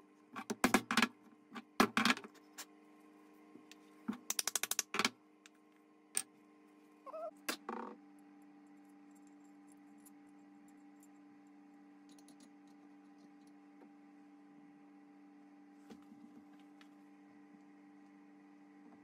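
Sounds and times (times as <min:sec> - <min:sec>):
metal parts clicking and tapping: 0:04.1 - 0:05.1.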